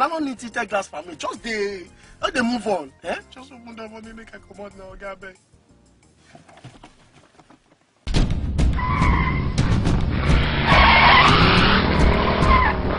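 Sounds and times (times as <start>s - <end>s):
car engine speeding off: 8.8s - 12.9s.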